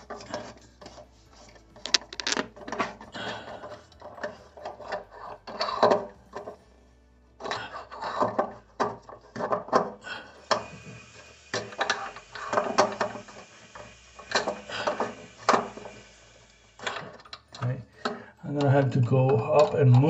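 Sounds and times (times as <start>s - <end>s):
tool clicking and scraping on nut: 0.0s - 6.6s.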